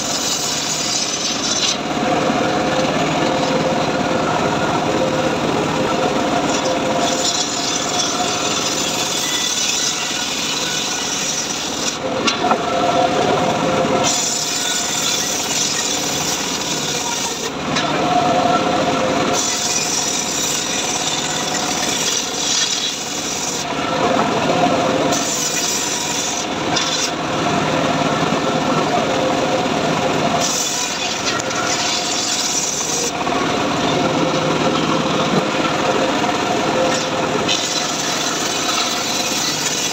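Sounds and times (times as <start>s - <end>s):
saw cutting wood hissing: 0.0s - 1.8s, 6.4s - 12.0s, 14.0s - 17.6s, 19.3s - 23.7s, 25.0s - 27.2s, 30.3s - 33.2s, 36.8s - 39.9s.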